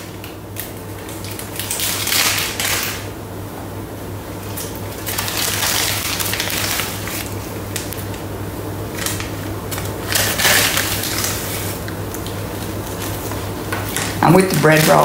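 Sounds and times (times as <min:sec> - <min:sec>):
steady low hum: 0:00.0 - 0:15.0
paper sack rustling: 0:04.5 - 0:08.2, 0:08.9 - 0:15.0.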